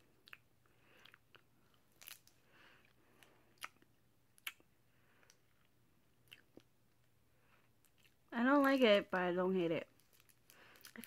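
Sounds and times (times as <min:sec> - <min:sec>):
hard candy being chewed: 0:00.0 - 0:08.8, 0:09.8 - 0:11.0
sharp candy cracks: 0:00.2 - 0:02.4, 0:10.0 - 0:11.0.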